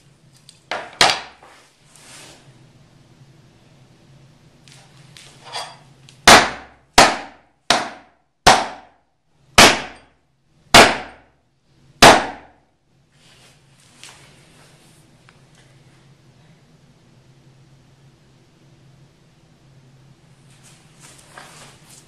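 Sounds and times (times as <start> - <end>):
hatchet chopping onto board: 0.7 - 1.4, 6.2 - 8.9, 9.6 - 10.0, 10.8 - 11.2, 12.0 - 12.6.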